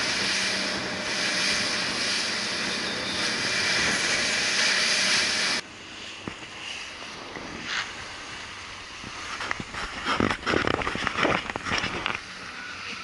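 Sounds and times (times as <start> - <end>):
rushing water: 0.0 - 5.6
wind on microphone: 0.0 - 5.6, 7.1 - 12.5.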